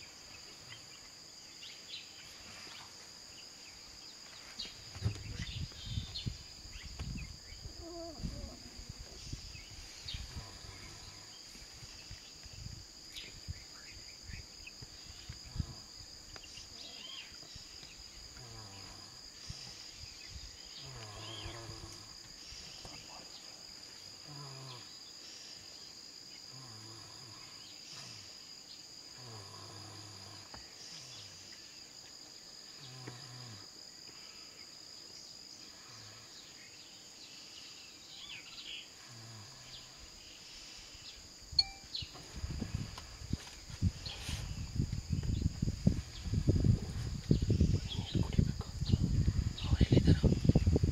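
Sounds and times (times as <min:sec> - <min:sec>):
insects droning: 0:00.0 - 0:50.9.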